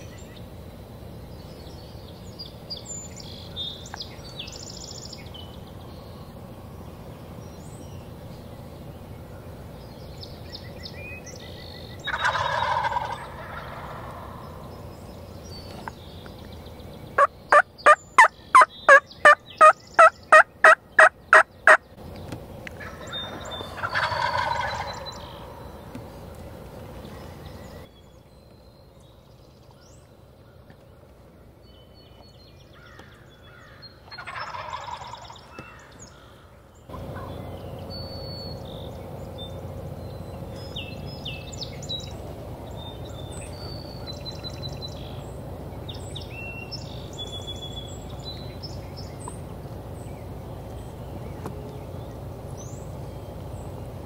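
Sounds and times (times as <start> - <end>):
turkey yelps: 12.1 - 14.3, 17.2 - 21.8, 22.8 - 25.5, 34.0 - 35.9, 36.9 - 37.5
turkey gobbling: 12.1 - 14.5, 17.2 - 21.8, 22.8 - 25.6, 34.0 - 35.9, 36.9 - 37.5.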